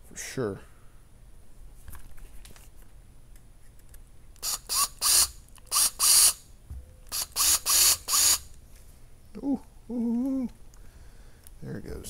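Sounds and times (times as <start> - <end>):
cordless drill whirring: 4.4 - 6.4, 7.1 - 8.5.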